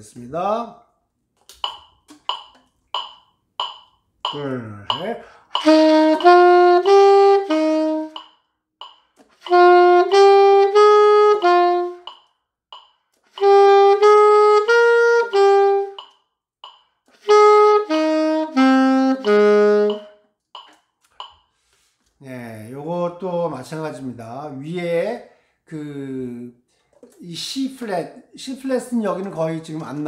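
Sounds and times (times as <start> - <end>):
alto saxophone playing detached notes: 4.9 - 8.3, 9.3 - 12.2, 13.3 - 16.0, 17.1 - 20.4.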